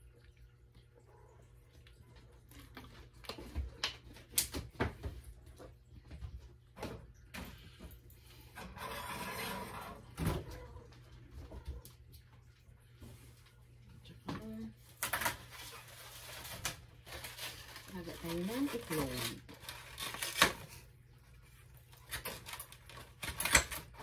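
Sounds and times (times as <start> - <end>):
rustling: 15.1 - 20.8.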